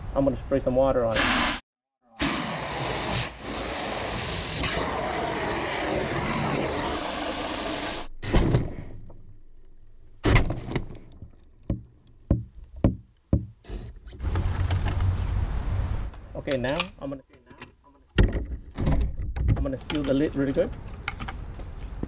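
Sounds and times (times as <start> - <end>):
hose spraying into plastic bucket: 2.2 - 8.1
sharp knocks: 11.6 - 13.6.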